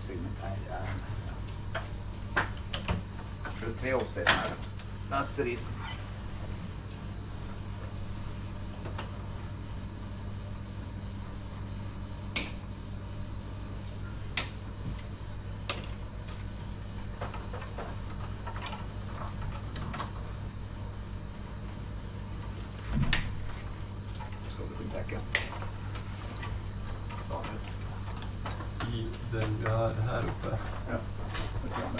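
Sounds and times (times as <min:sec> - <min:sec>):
low machinery hum: 0:00.0 - 0:31.9.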